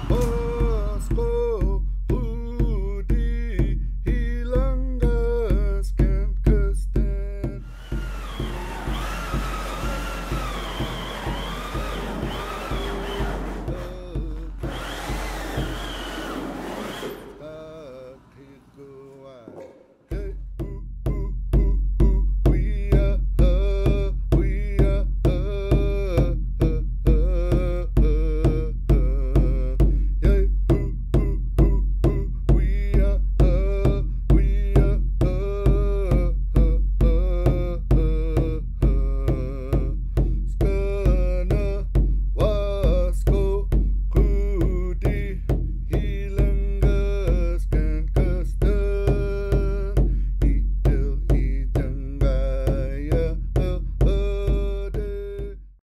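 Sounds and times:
background music with steady beat: 0:00.0 - 0:17.4.

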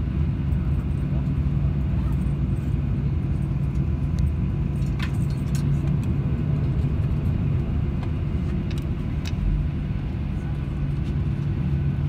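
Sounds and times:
aircraft engines idling: 0:00.0 - 0:12.0
low cabin rumble: 0:00.0 - 0:12.0.

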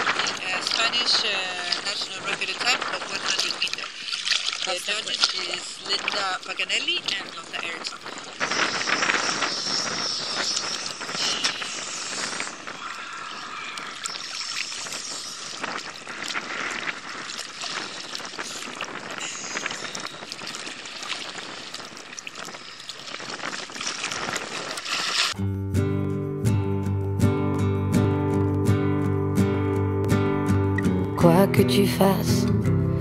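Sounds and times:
small waves splashing: 0:00.0 - 0:25.4.

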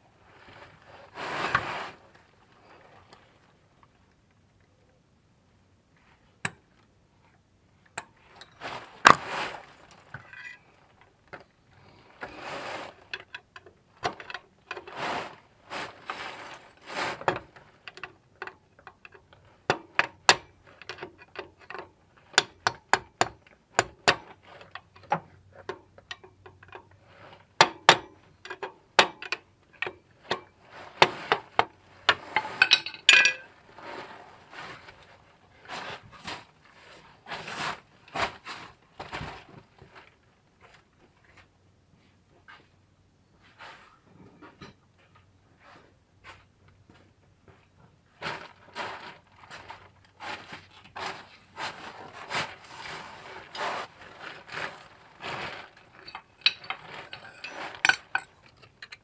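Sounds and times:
rustling: 0:00.1 - 0:04.9, 0:08.2 - 0:18.2, 0:30.1 - 0:42.8, 0:45.0 - 0:59.0
metal tools clicking and clinking: 0:32.4 - 0:33.5, 0:56.0 - 0:59.0.

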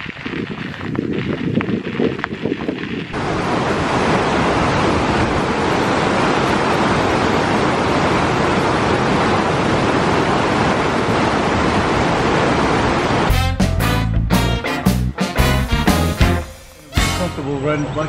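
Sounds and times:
stream rushing over rapids: 0:03.1 - 0:13.3.

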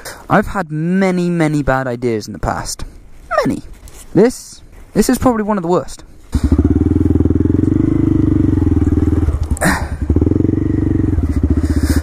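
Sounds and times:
motorcycle engine running: 0:06.3 - 0:12.0.

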